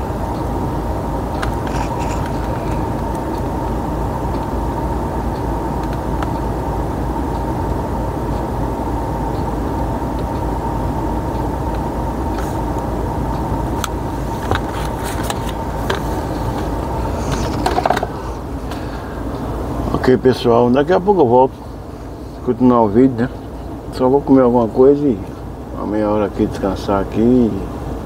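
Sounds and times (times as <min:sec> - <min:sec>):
steady whine: 0:00.0 - 0:28.0
truck engine running: 0:00.0 - 0:28.0
sharp clicks and knocks: 0:05.8 - 0:06.4, 0:17.3 - 0:18.2.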